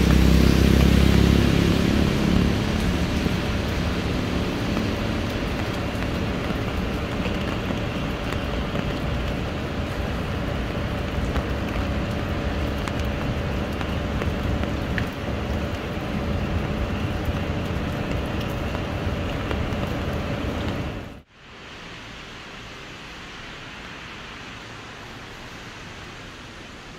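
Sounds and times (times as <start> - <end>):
rain on wet pavement: 0.0 - 26.9.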